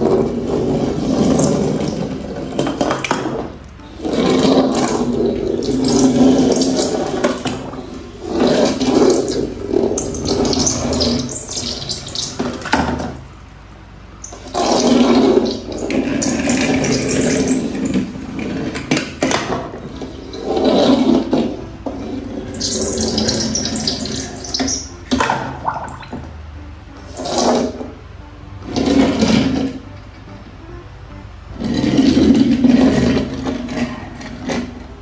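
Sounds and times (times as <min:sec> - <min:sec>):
water splashing in a basin: 0:22.5 - 0:26.3.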